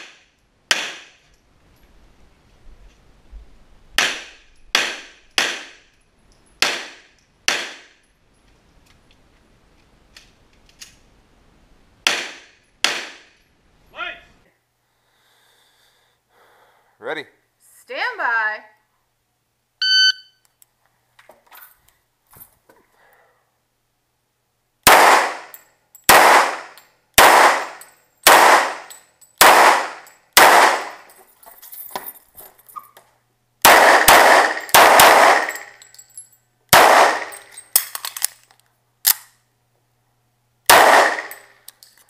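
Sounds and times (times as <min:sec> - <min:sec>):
handgun shots: 0:00.0 - 0:01.2, 0:04.0 - 0:05.9, 0:06.6 - 0:08.0, 0:12.0 - 0:13.4, 0:24.9 - 0:31.1, 0:33.6 - 0:35.7, 0:36.7 - 0:38.3, 0:40.7 - 0:41.5
shot timer beep: 0:19.8 - 0:20.4.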